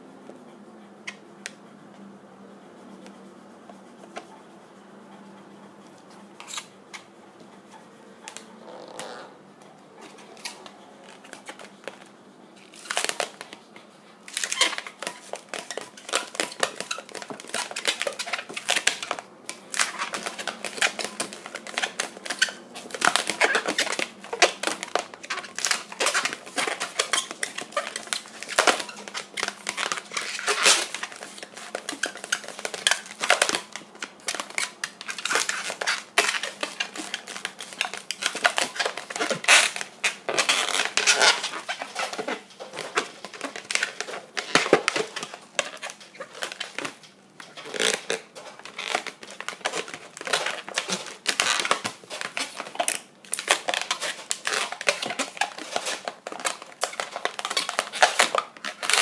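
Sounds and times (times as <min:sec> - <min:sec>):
balloon squeaking and rubbing: 0:07.7 - 0:09.4, 0:12.6 - 0:13.5, 0:14.3 - 0:47.0, 0:47.6 - 0:59.0.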